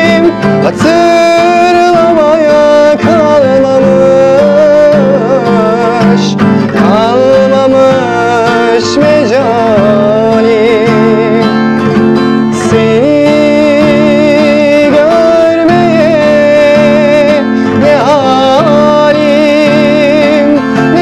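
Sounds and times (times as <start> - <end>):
man singing slowly: 0.0 - 21.0
strummed acoustic guitar: 0.0 - 21.0.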